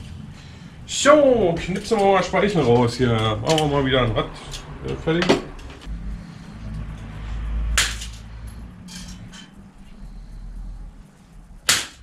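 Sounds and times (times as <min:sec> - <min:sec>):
cutters snapping bicycle spoke: 0:02.8 - 0:03.8.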